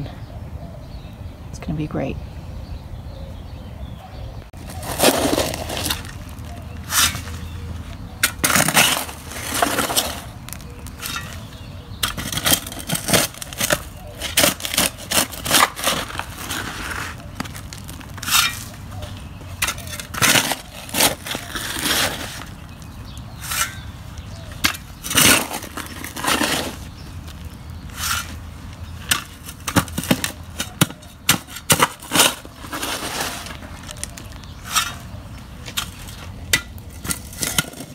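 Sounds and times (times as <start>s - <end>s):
shovel blade scraping stones: 4.6s - 37.9s
shovel chopping into rocky soil: 4.7s - 7.6s, 8.2s - 18.8s, 19.6s - 22.7s, 23.3s - 27.0s, 29.0s - 37.9s.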